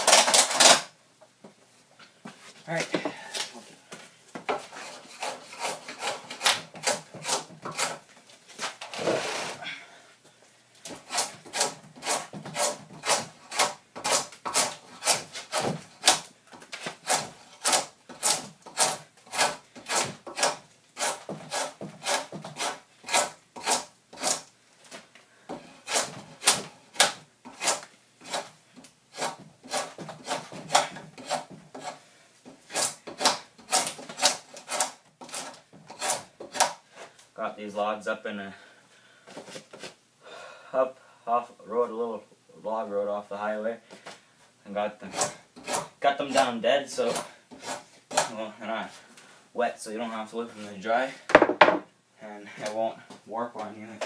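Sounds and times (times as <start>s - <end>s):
draw knife scraping wood: 4.5s - 8.0s, 10.9s - 24.5s, 25.8s - 28.5s, 29.1s - 37.1s, 45.0s - 48.3s.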